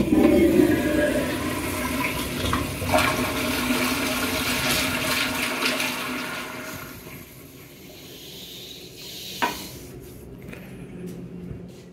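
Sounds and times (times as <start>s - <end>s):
toilet flush water rushing: 0.0s - 8.2s.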